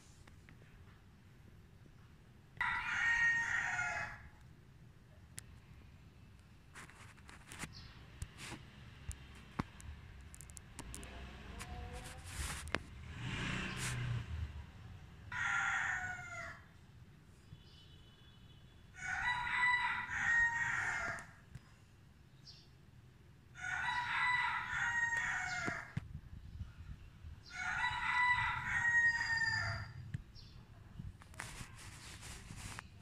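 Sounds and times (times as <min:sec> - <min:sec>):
rooster crowing: 0:02.6 - 0:04.4, 0:15.3 - 0:16.7, 0:19.0 - 0:21.4, 0:23.6 - 0:26.0, 0:27.4 - 0:30.0.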